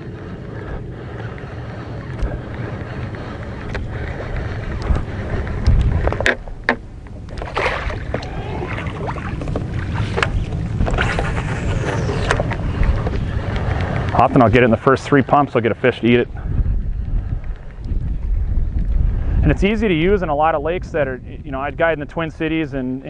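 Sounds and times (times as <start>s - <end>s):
water around boat: 0.0s - 23.0s
wind: 0.0s - 23.0s
lure splashing at surface: 7.4s - 12.4s.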